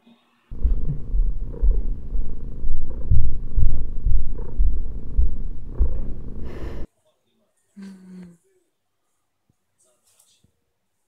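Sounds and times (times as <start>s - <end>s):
cat purring loudly: 0.5s - 6.9s.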